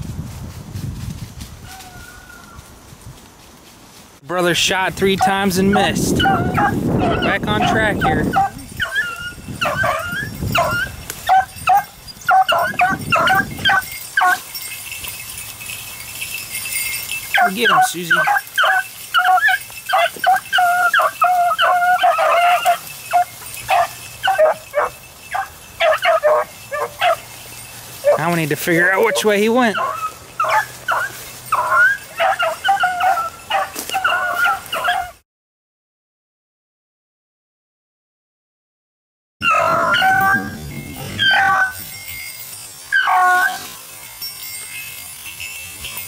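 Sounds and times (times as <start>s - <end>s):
hounds baying: 5.1s - 35.2s, 39.4s - 44.0s
dogs barking: 5.2s - 14.5s, 17.3s - 27.3s, 28.0s - 35.2s, 39.4s - 42.0s, 42.9s - 43.8s.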